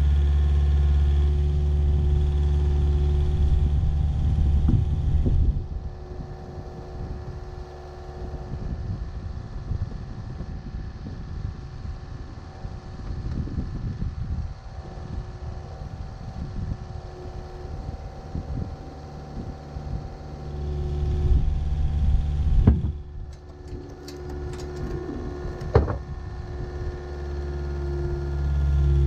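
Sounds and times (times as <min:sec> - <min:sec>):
diesel engine idling: 0:00.0 - 0:08.6, 0:14.5 - 0:29.0
faint engine hum: 0:00.0 - 0:29.0
wind rumble: 0:01.7 - 0:29.0
sharp knocks: 0:25.6 - 0:26.0.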